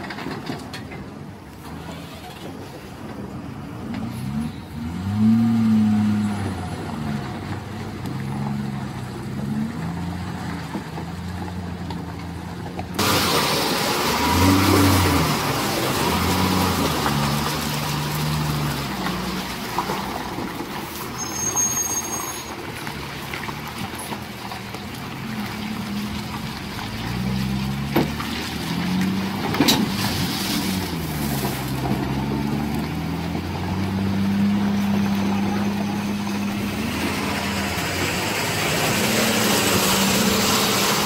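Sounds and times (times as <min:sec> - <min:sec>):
truck diesel engines labouring: 0:00.0 - 0:41.0
hiss over truck engine: 0:13.0 - 0:22.8, 0:29.7 - 0:32.1, 0:34.6 - 0:41.0.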